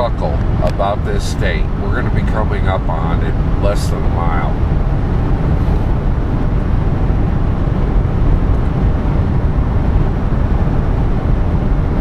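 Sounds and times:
car road and engine drone: 0.0 - 12.0.

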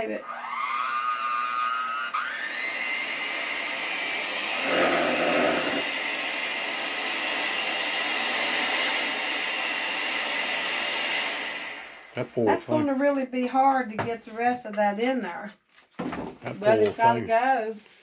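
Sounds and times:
electric mixer whining: 0.0 - 12.1.

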